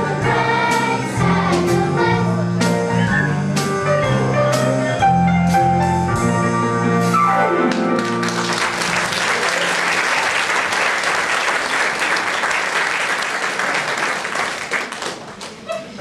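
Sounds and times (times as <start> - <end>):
audience applauding: 7.7 - 16.0.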